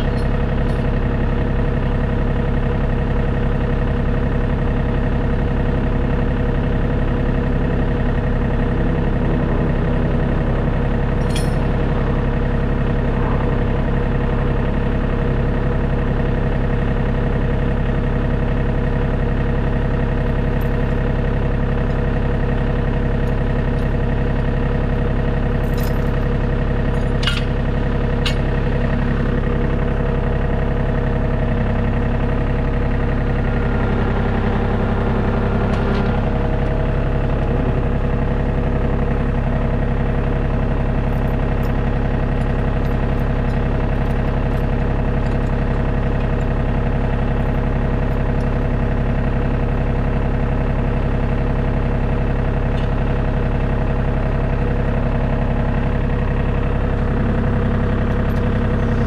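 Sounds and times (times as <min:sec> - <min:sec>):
tractor engine idling: 0:00.0 - 0:59.0.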